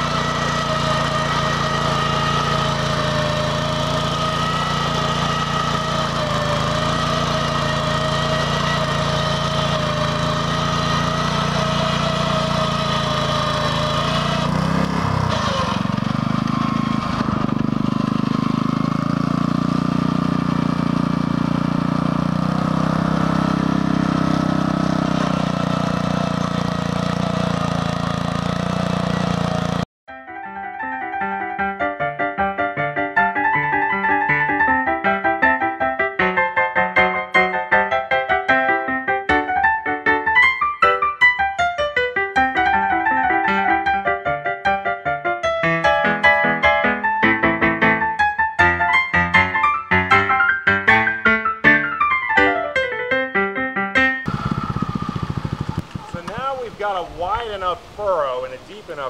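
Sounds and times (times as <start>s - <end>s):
tractor engine running: 0.0s - 29.9s, 54.3s - 59.0s.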